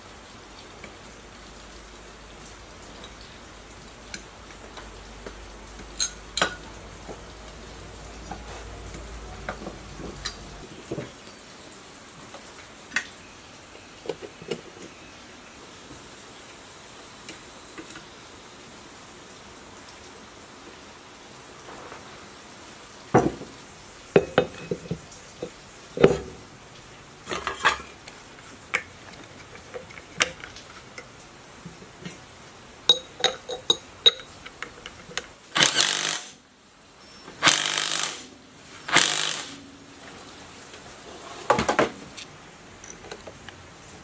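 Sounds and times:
metal tools clinking on table: 6.0 - 6.7, 9.5 - 10.6, 24.2 - 26.4, 27.3 - 28.0, 32.9 - 35.1.

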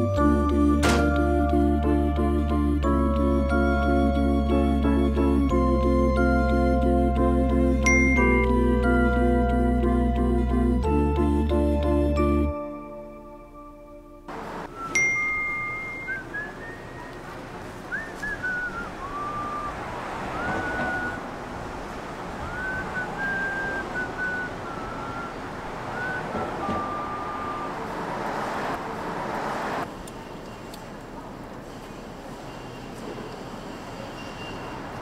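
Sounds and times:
outdoor background noise: 14.2 - 35.0
person whistling a slow tune: 14.7 - 17.2, 17.9 - 21.2, 22.5 - 25.4, 26.0 - 27.8.

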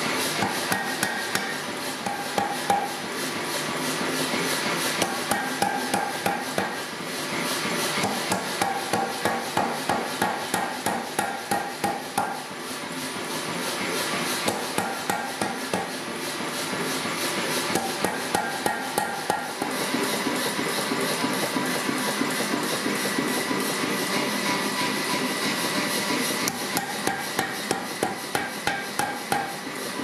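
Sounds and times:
power hammer striking steel: 0.0 - 3.5, 4.9 - 7.0, 7.7 - 12.6, 14.2 - 16.0, 17.5 - 23.4, 26.4 - 30.0.

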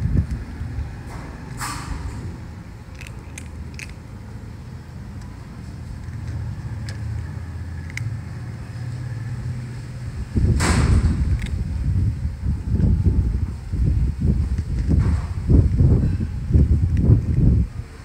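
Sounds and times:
cat chewing dry kibble: 2.9 - 4.1
loud rushing noise: 4.5 - 16.8.

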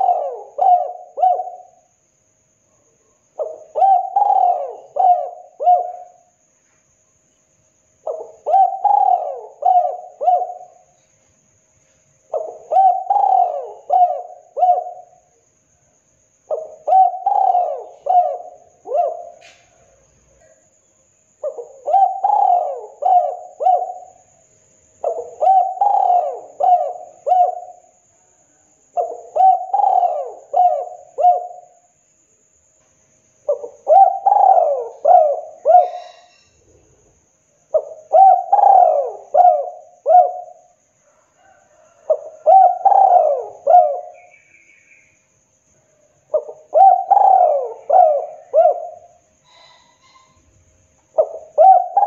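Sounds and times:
dove cooing: 0.0 - 1.9, 3.4 - 6.3, 8.0 - 11.0, 12.3 - 15.2, 16.5 - 20.6, 21.4 - 24.2, 25.0 - 27.9, 29.0 - 31.8, 33.5 - 36.5, 37.7 - 44.3, 46.3 - 50.4, 51.1 - 52.0.

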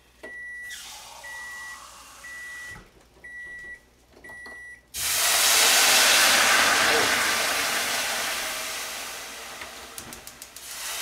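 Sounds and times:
appliance beeping: 0.2 - 4.9.

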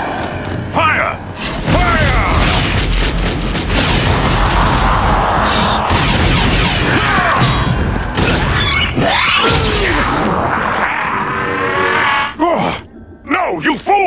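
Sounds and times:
blaster fire: 1.4 - 10.2
explosions: 1.5 - 8.7.

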